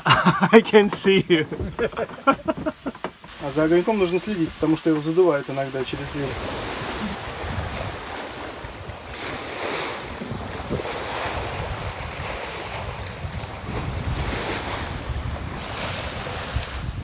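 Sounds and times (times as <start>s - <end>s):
water splashing along boat hull: 0.0s - 17.0s
wind buffeting microphone: 0.6s - 2.8s, 5.8s - 17.0s.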